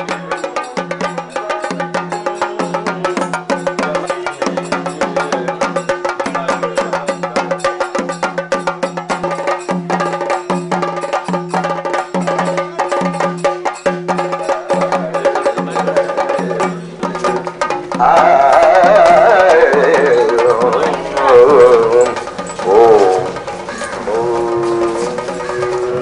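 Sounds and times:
fast stick drumming: 0.1 - 26.0
low sliding melody: 17.2 - 26.0.

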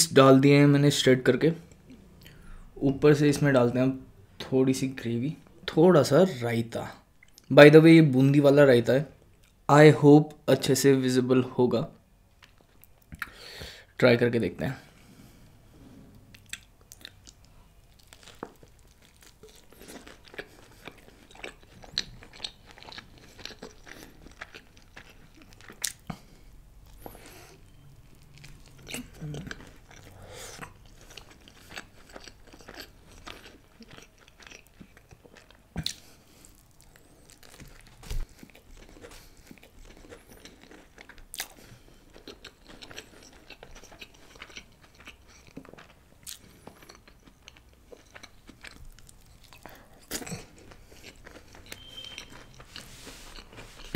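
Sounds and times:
chewing and biting bread: 16.4 - 53.9.

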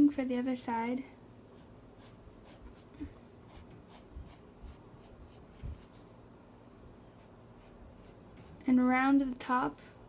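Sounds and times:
pencil scratching on paper: 1.6 - 2.9, 3.5 - 6.1, 7.2 - 8.6.

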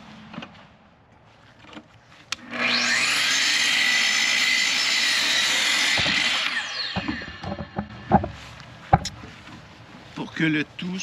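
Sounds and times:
power saw cutting wood: 2.4 - 8.4.

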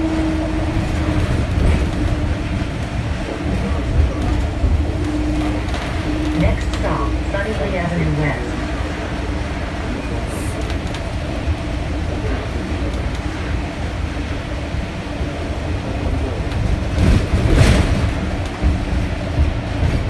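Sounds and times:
transit vehicle rumble: 0.0 - 20.0.

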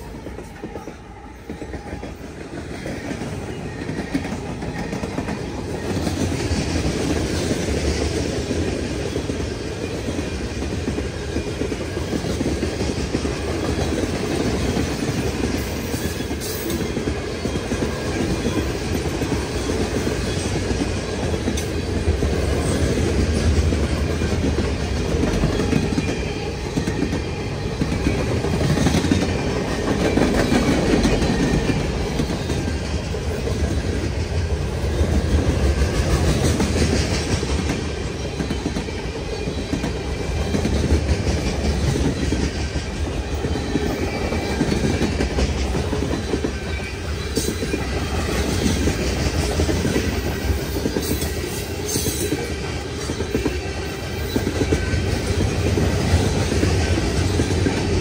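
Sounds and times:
heavy train rumble: 0.0 - 58.0
train wheels clattering over rail joints: 0.1 - 58.0.

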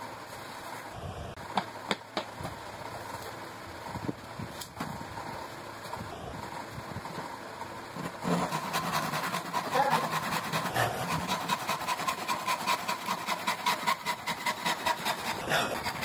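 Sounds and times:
steady high hum: 0.0 - 16.0
rasping strokes on wood: 7.9 - 16.0.

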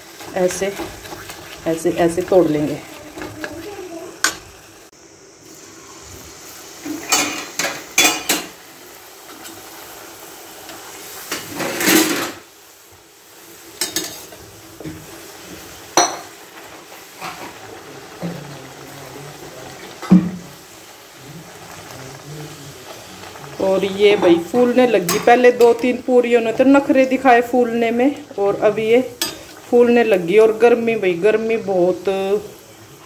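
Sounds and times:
deep-frying sizzle in oil: 0.0 - 33.0
spoons clinking on metal pans: 7.1 - 8.5, 13.8 - 14.3, 16.0 - 16.3, 25.0 - 25.9, 29.2 - 29.5.

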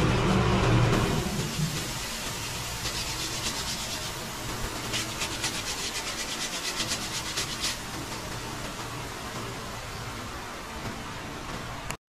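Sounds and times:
sandpaper sanding strokes: 1.6 - 8.0.

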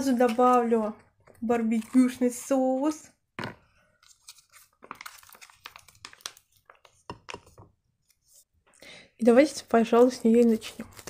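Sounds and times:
plastic pouch crinkling and clicking: 4.0 - 7.6.

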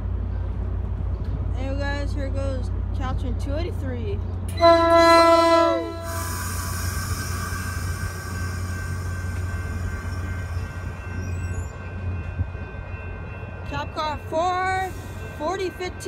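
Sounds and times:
train cars rumbling by: 0.0 - 16.0
train horn chord: 4.5 - 9.7.

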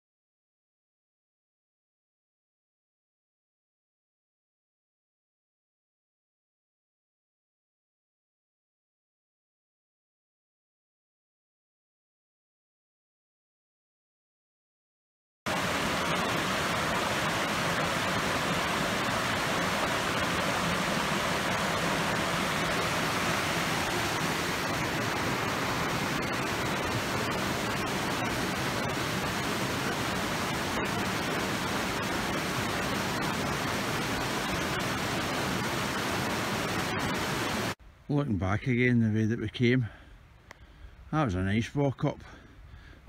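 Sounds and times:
stream rushing over stone weir: 15.5 - 37.8.

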